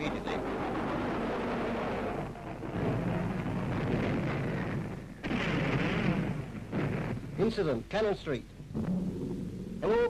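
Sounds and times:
loud bomb blast: 0:00.0 - 0:07.6
distant explosions rumbling: 0:00.0 - 0:10.0.

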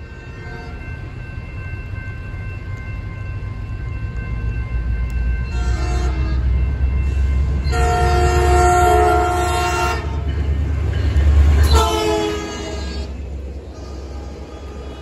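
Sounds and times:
locomotive engine rumbling: 0:00.0 - 0:15.0
train horn blasts: 0:05.5 - 0:06.5, 0:07.6 - 0:10.2, 0:11.6 - 0:15.0.

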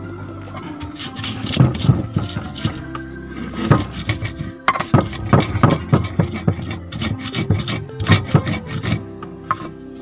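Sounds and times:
stone pestle grinding in mortar: 0:00.5 - 0:10.0.

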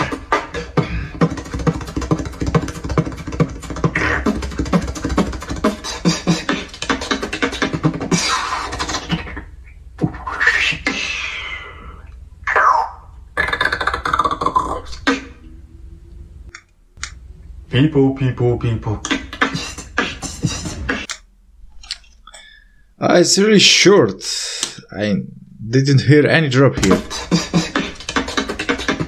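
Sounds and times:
beatboxing drum-like clicks: 0:00.0 - 0:11.2, 0:13.4 - 0:15.3, 0:19.0 - 0:21.2, 0:26.8 - 0:29.0
low vocal bass: 0:17.7 - 0:21.0, 0:26.8 - 0:27.8
sweeping gliding vocal effects: 0:26.8 - 0:29.0.

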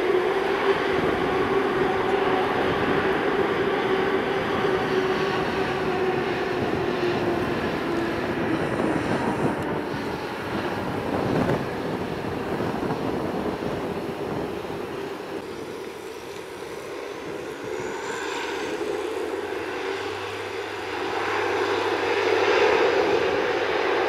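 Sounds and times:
engine humming tone: 0:00.0 - 0:24.0
jet engines rushing: 0:00.0 - 0:24.0.

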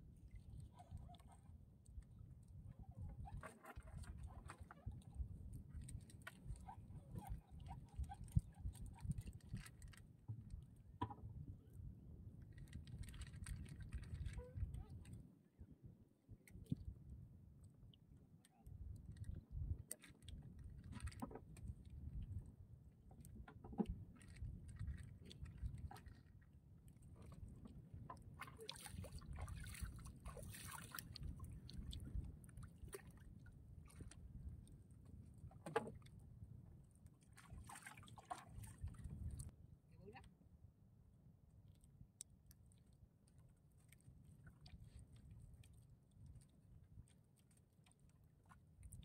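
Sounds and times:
water lapping against canoe: 0:00.1 - 0:01.8, 0:02.5 - 0:11.5, 0:12.6 - 0:15.2, 0:23.1 - 0:36.4, 0:37.2 - 0:39.5
knocks and clicks from boat: 0:10.3 - 0:11.6, 0:20.9 - 0:21.7, 0:23.1 - 0:25.8, 0:35.4 - 0:36.2.

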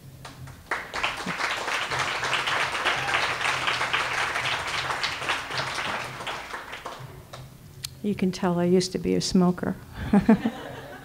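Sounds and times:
audience applauding: 0:00.2 - 0:07.5.

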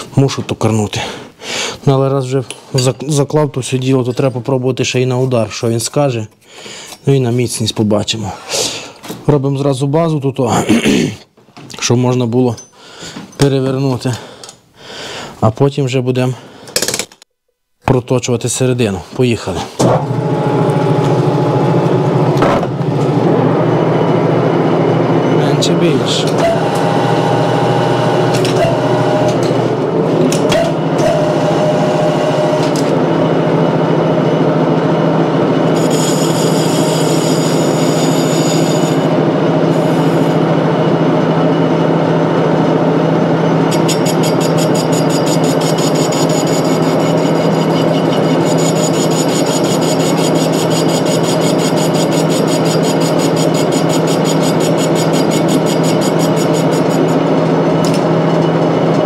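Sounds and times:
metal lathe cutting: 0:23.2 - 0:33.8, 0:35.5 - 0:41.0, 0:43.2 - 0:58.9
high-pitched rattle: 0:43.7 - 0:57.2.

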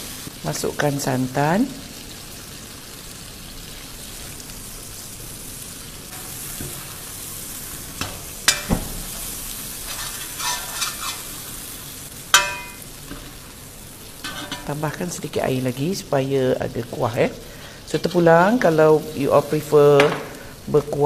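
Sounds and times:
curry sizzling in a pan: 0:00.0 - 0:21.0
light scraping and clatter: 0:09.8 - 0:11.2
ladle knocking against pan: 0:12.4 - 0:13.3.

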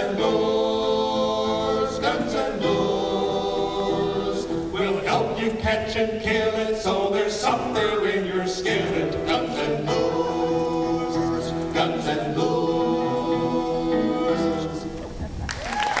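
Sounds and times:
men singing a cappella harmony: 0:00.0 - 0:15.0.

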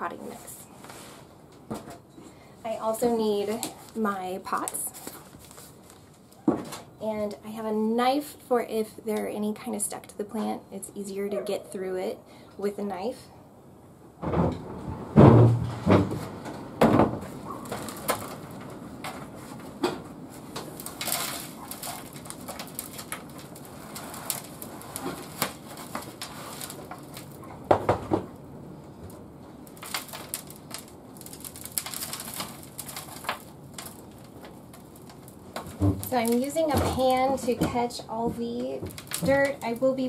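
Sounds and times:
soil falling on metal tray: 0:20.5 - 0:28.1, 0:28.9 - 0:40.0.

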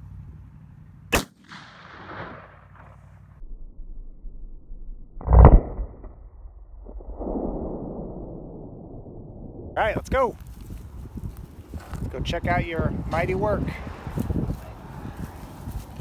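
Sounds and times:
heavy rifle blast: 0:01.1 - 0:03.1
rifle shot crack with echo: 0:01.1 - 0:03.2.

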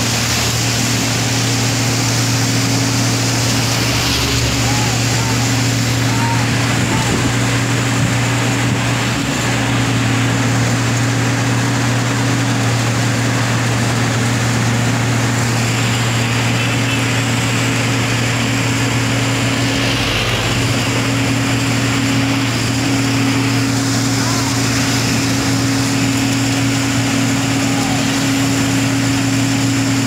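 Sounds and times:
milling machine droning: 0:00.0 - 0:30.0.

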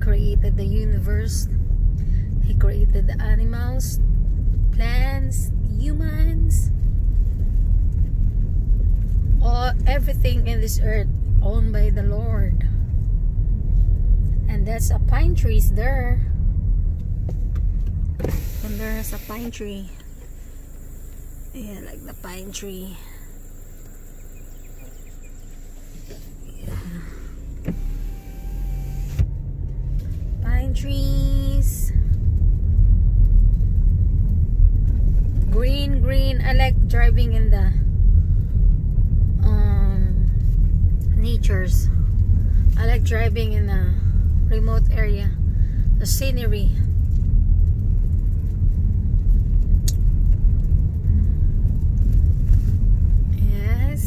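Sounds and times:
car engine and road rumble: 0:00.0 - 0:54.0
electric car window running up: 0:18.2 - 0:20.2, 0:24.6 - 0:29.3
window shutting click: 0:27.6 - 0:29.3.

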